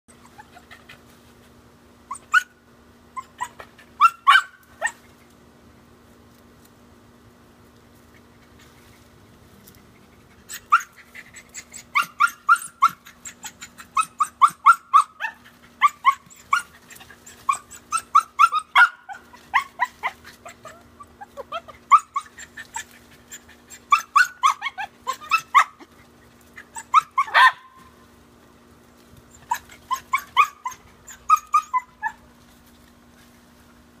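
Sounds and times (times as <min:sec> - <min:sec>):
dog barking high sharp yaps: 0:03.4 - 0:05.0, 0:11.9 - 0:13.0, 0:14.0 - 0:16.7, 0:17.5 - 0:19.9, 0:26.8 - 0:27.8.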